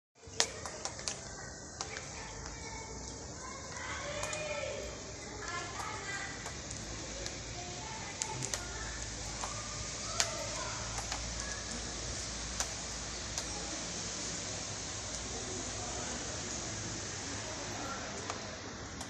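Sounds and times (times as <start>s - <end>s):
steady rain hissing: 0.2s - 19.0s.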